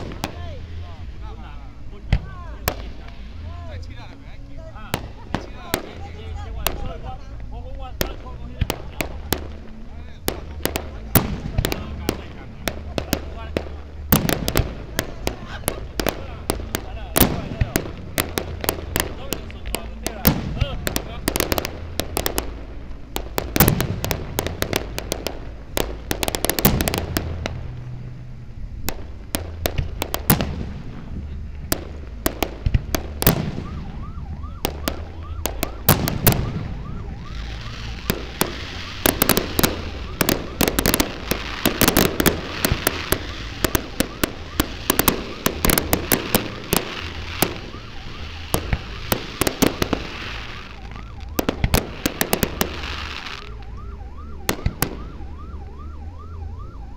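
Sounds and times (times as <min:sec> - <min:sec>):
fireworks bangs and pops: 0:00.0 - 0:28.2, 0:28.8 - 0:55.2
fireworks hissing crackle: 0:00.0 - 0:53.8.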